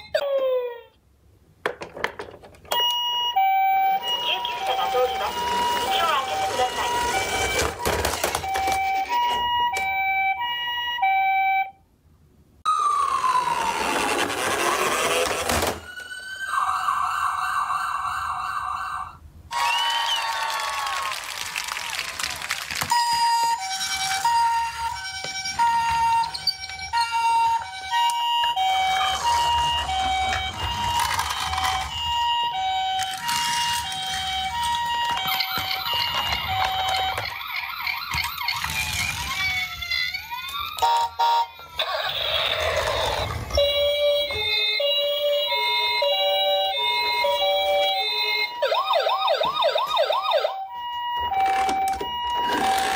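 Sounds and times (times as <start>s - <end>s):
two-tone toy siren: 0.0s - 1.0s, 2.7s - 11.8s, 12.7s - 21.1s, 22.9s - 52.9s
siren tone sliding downward: 12.7s - 19.2s.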